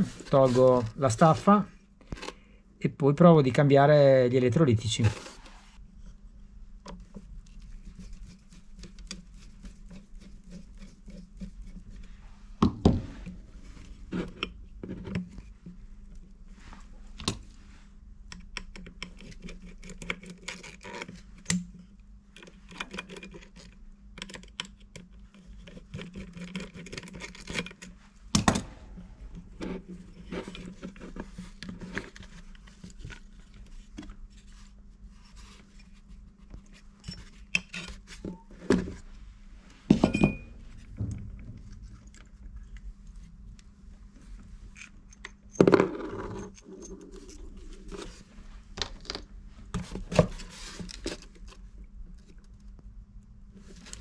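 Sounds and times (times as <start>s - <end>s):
faint low hum: 0.0s - 54.0s.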